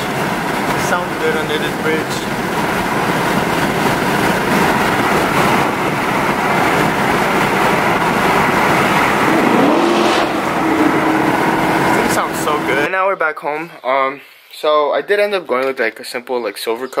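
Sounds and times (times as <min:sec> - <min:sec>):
car engine running: 0:00.0 - 0:12.9.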